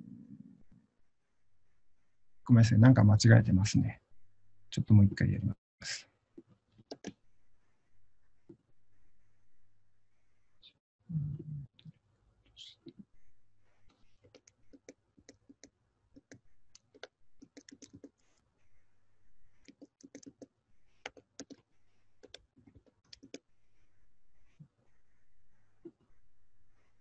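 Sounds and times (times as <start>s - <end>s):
typing on computer keyboard: 14.2s - 18.1s, 19.6s - 21.6s, 22.2s - 23.4s.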